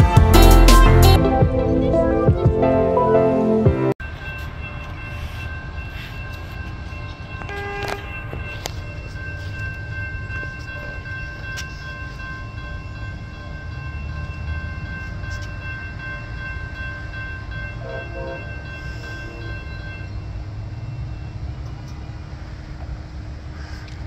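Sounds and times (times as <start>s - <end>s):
crossing warning bell ringing: 4.0s - 22.5s.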